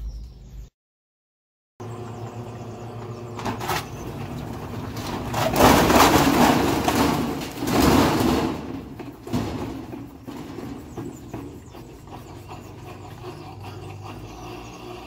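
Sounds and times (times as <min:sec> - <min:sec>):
washing machine motor hum: 0:01.8 - 0:15.0
washing machine rattling and banging: 0:02.9 - 0:15.0
sharp knocks: 0:04.8 - 0:12.1.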